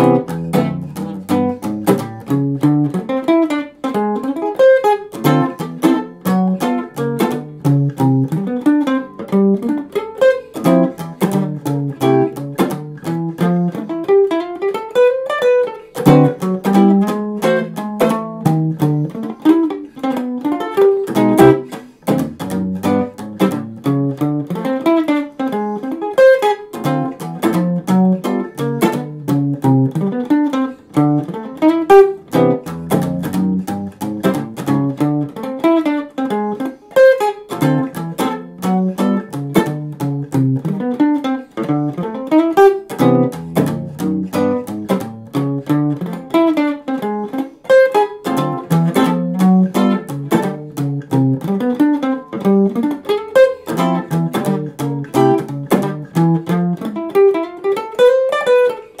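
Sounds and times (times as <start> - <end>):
jazz guitar playing: 0.0 - 59.0.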